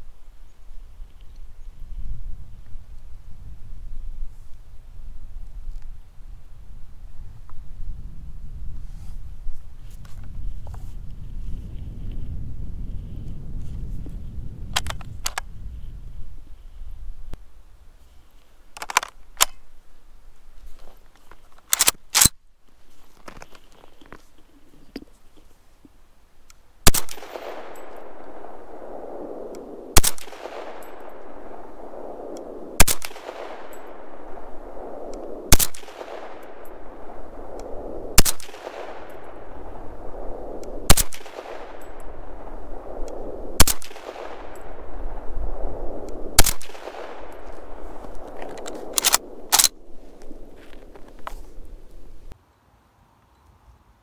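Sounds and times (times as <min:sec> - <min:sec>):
rifle shots echoing: 0:26.8 - 0:52.4
light clicks: 0:46.0 - 0:52.4.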